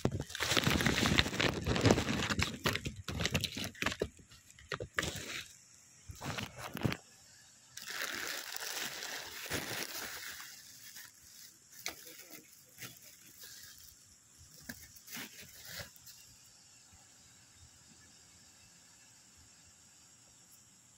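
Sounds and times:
packaging rustling: 0.0s - 7.0s, 7.8s - 14.0s.

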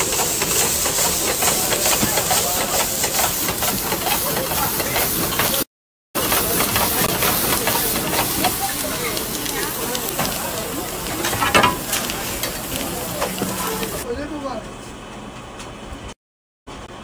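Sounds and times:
food sizzling in a pan: 6.2s - 14.0s.

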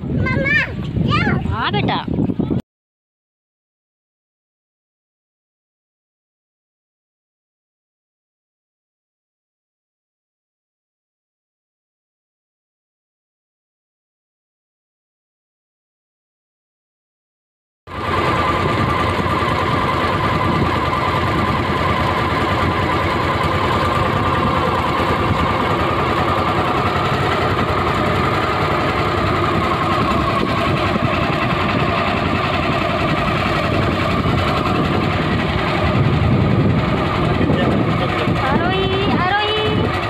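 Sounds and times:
boat engine running: 17.9s - 40.0s
steady engine whine: 17.9s - 40.0s.

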